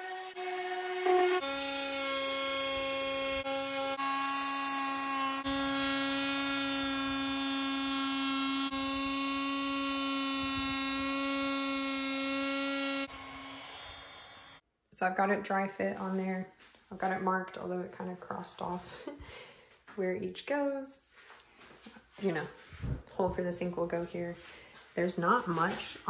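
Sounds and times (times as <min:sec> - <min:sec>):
power tool high-pitched buzz: 0:00.0 - 0:14.6.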